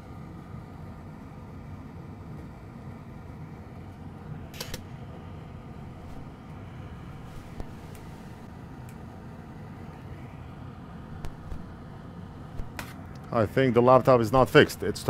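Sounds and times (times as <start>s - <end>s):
low fan-like hum: 0.0s - 15.0s.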